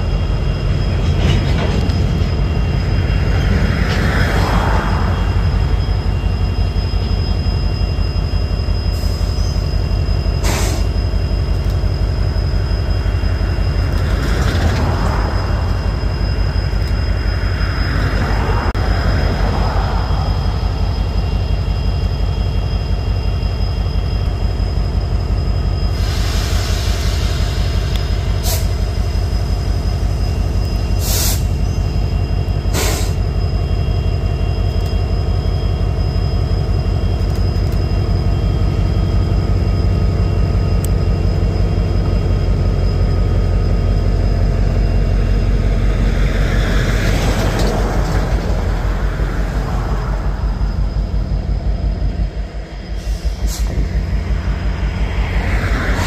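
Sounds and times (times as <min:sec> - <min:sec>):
diesel locomotive engine rumble: 0:00.0 - 0:56.0
hiss: 0:10.4 - 0:11.0, 0:25.9 - 0:29.0, 0:31.0 - 0:31.6, 0:32.7 - 0:33.3.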